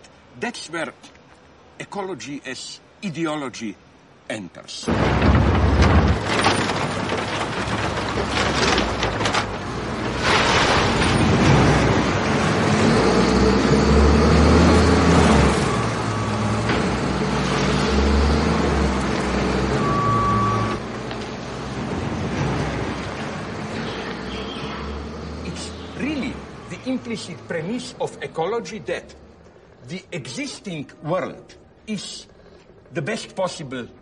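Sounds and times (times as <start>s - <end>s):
waste scraping and clattering: 4.9s - 12.2s
diesel loader engine revving: 4.9s - 28.0s.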